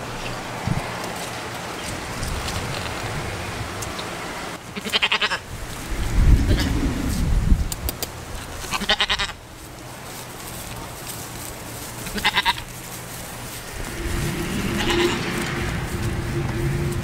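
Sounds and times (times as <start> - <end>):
goat bleating: 4.7 - 5.4, 8.7 - 9.4, 12.0 - 12.8.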